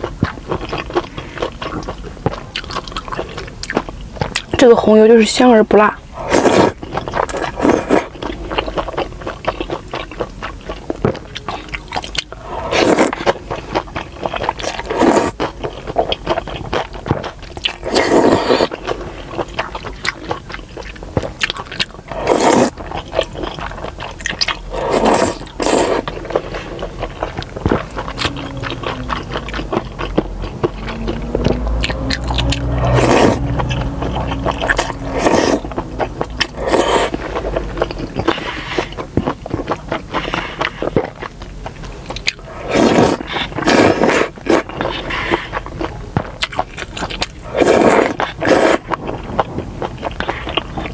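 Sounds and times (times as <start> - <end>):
chewing: 0.0 - 4.7, 6.0 - 50.9
person slurping noodles: 6.1 - 8.6, 12.4 - 13.4, 14.4 - 16.1, 17.6 - 19.2, 22.1 - 23.1, 24.4 - 39.1, 42.4 - 45.7, 47.4 - 49.0.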